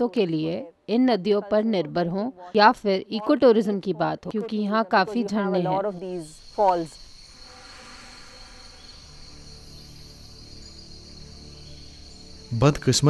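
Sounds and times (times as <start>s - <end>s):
crickets trilling: 5.1s - 13.0s.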